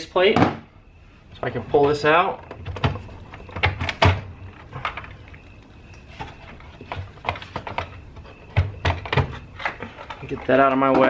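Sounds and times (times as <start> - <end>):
plastic clicks and knocks: 1.8 - 5.5.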